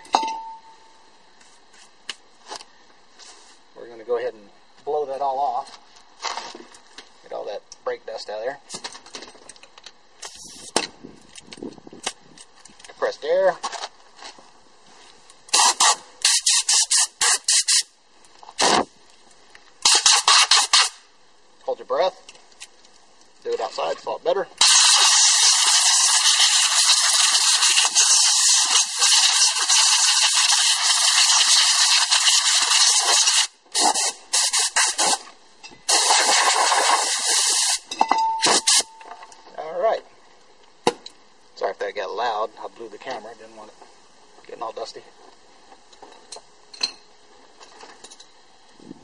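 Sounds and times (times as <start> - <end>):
air blow gun hissing bursts: 15.5 - 17.9, 19.8 - 21.0, 24.6 - 35.3, 35.9 - 38.9.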